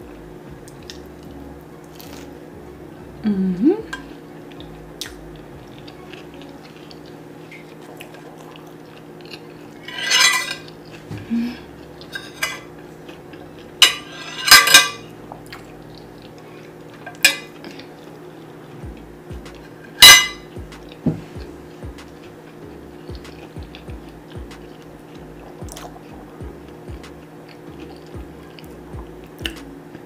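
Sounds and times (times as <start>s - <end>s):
steady low hum: 0.0s - 30.0s
cutlery clinking on a plate: 9.9s - 10.7s, 12.1s - 12.7s, 13.8s - 15.0s, 20.0s - 20.5s.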